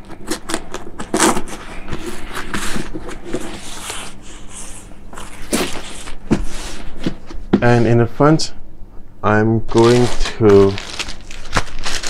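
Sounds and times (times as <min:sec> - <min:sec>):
fabric rustling and rubbing: 0:09.7 - 0:12.0.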